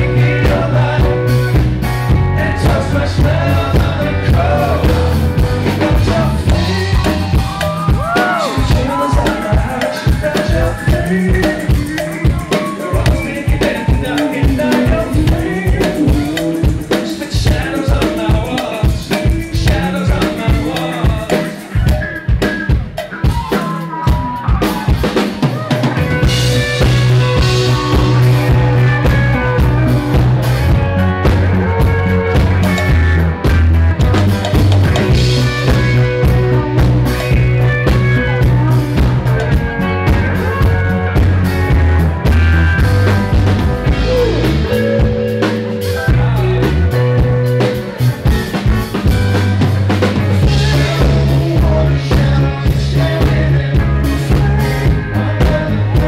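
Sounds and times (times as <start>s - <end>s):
heavy sustained bass notes: 0.0s - 9.2s, 26.3s - 56.0s
drum-kit beat: 0.0s - 56.0s
keyboards: 0.0s - 56.0s.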